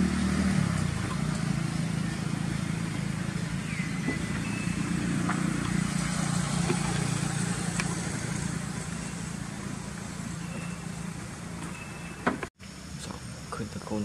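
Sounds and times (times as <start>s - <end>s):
low engine hum: 0.0s - 14.0s
high squeak: 10.3s - 12.4s.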